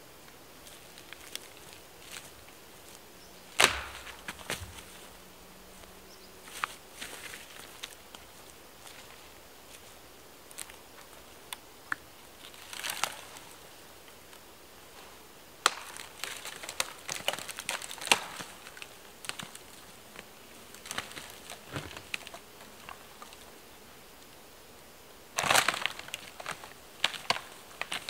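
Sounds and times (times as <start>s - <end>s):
rustle of footsteps: 0.2s - 23.6s
trunk dragged over forest floor: 0.6s - 3.0s, 3.6s - 11.3s, 20.7s - 23.5s
dry branches snapping and crackling: 0.6s - 5.2s, 5.8s - 14.4s, 15.6s - 23.5s, 25.4s - 28.0s.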